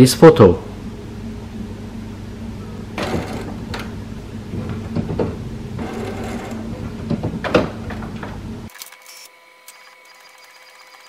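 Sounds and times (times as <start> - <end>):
inkjet printer printing: 3.0 - 11.0.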